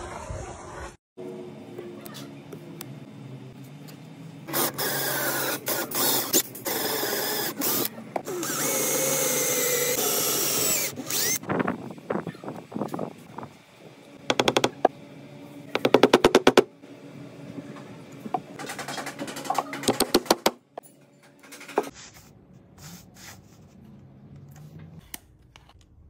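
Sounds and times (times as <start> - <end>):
power drill boring into wood: 4.5 - 11.4.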